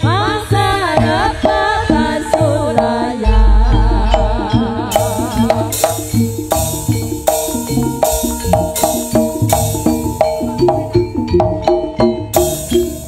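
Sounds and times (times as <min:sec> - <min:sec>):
gamelan notes: 0:00.0 - 0:13.0
hand drums beating: 0:00.0 - 0:13.0
sharp percussive hit: 0:02.9 - 0:13.0.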